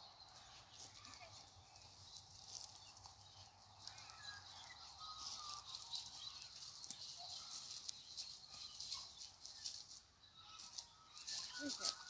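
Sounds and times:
faint bird chirps: 0.0 - 12.0
footsteps on gravel: 0.3 - 12.0.

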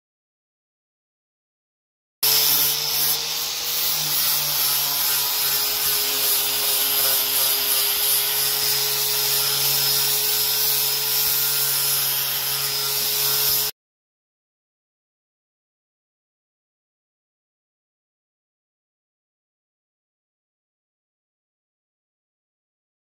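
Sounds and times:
angle grinder sanding metal: 2.2 - 13.7.

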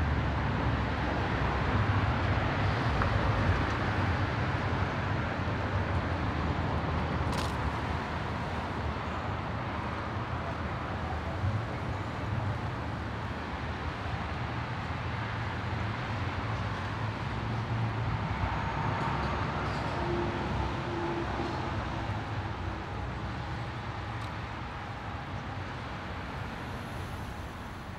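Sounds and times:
car engine and road noise: 0.0 - 27.9.

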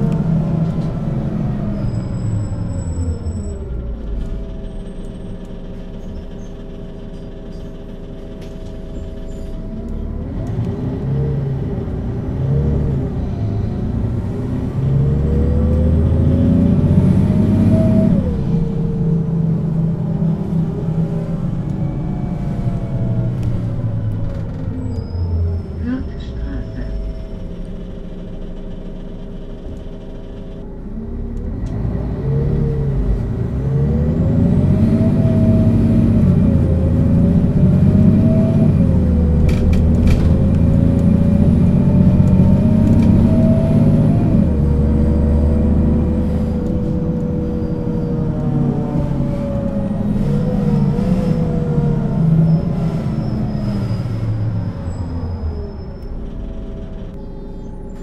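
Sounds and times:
bus diesel engine accelerating: 0.0 - 58.0
gearbox whine: 0.0 - 58.0.

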